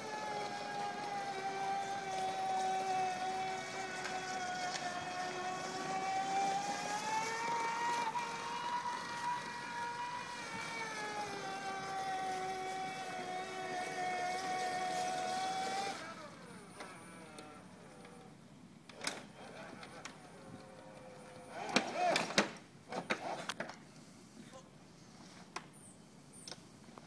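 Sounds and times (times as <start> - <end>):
electric motor whining: 0.0 - 18.3, 19.0 - 22.4.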